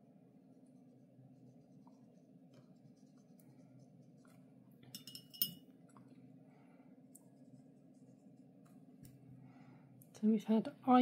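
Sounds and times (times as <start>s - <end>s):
faint steady hum: 0.0s - 11.0s
paintbrush clicking on glass jar: 4.8s - 5.6s.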